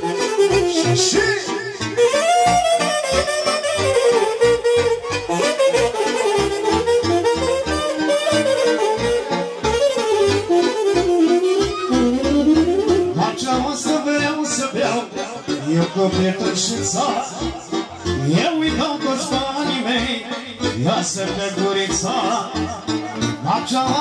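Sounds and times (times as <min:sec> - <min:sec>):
saxophone solo melody: 0:00.0 - 0:14.2.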